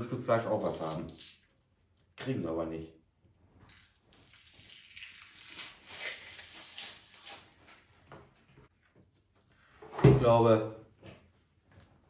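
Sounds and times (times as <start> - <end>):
silver skin peeling off meat: 3.7 - 7.8.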